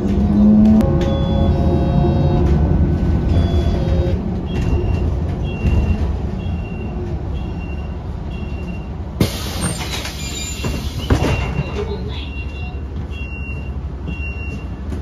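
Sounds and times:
bus ride rumble: 0.0s - 15.0s
short high beeps: 3.3s - 4.2s.

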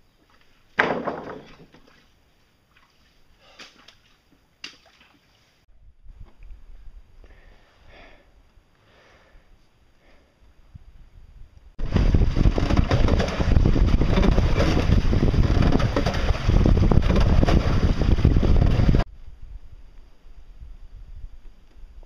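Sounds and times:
wind buffeting microphone: 10.7s - 22.0s
outboard motor running: 11.8s - 19.0s
water churning: 11.8s - 19.0s.

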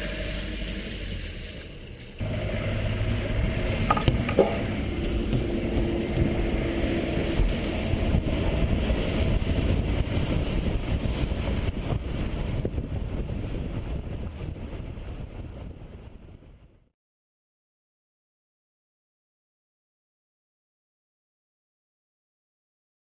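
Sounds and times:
vehicle engine running: 0.0s - 15.6s
wind noise: 2.2s - 16.9s.

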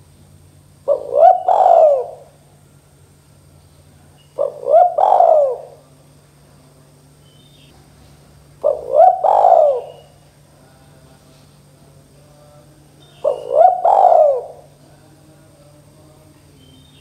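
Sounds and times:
dove cooing: 0.8s - 2.4s, 4.2s - 5.9s, 8.6s - 10.2s, 13.2s - 14.8s.

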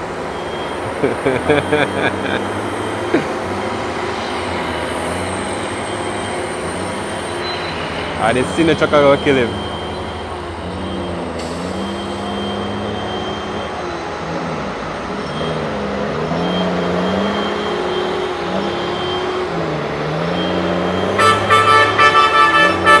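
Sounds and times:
truck diesel engine pulling uphill: 0.0s - 23.0s
truck horn short blasts: 21.1s - 23.0s.

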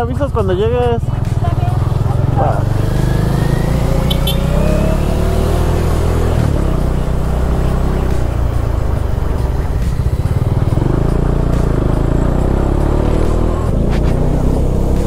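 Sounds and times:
motorcycle engine running: 0.0s - 15.0s.

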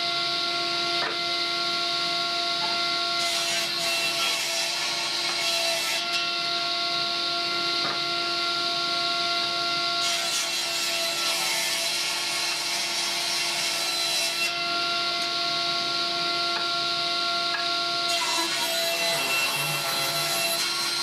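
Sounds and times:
table saw whining: 0.0s - 21.0s
saw blade cutting wood: 0.9s - 1.3s, 2.6s - 6.5s, 10.0s - 15.4s, 17.4s - 21.0s.

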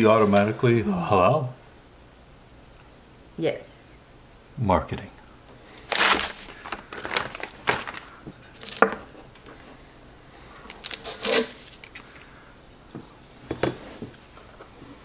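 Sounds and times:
plastic packaging rustling: 5.7s - 9.7s, 10.6s - 12.4s.

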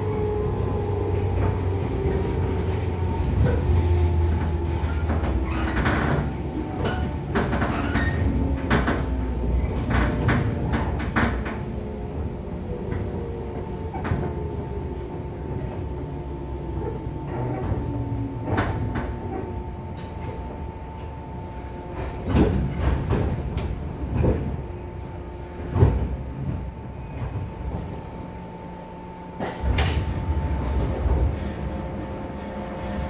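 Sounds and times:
train running rumble and hum: 0.0s - 33.0s.

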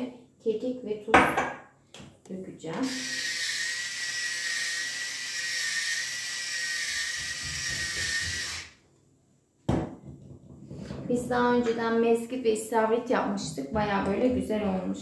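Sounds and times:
electric grinder whining: 2.8s - 8.8s.

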